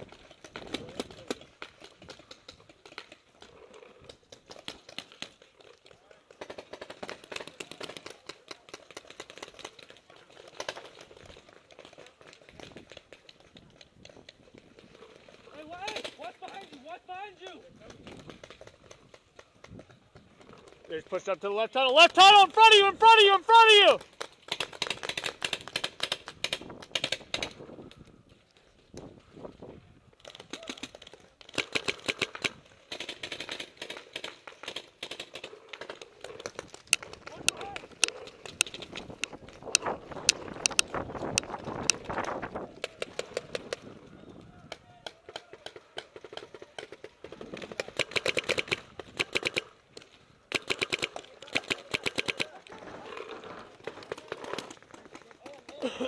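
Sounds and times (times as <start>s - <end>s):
paintball markers firing: 24.0s - 27.7s, 30.2s - 43.8s, 44.7s - 55.9s.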